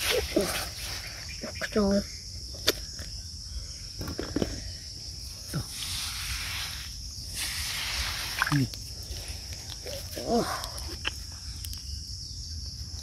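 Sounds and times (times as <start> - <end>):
insect chorus drone: 0.0 - 13.0
hands digging in wet sand: 5.6 - 10.2.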